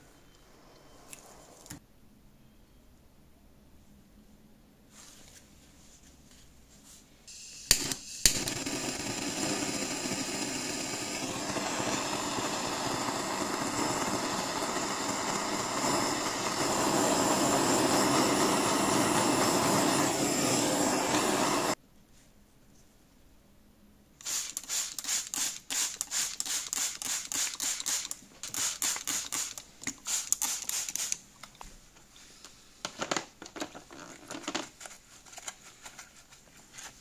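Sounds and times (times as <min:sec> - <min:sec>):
blowtorch flame roaring: 0:08.3 - 0:21.8.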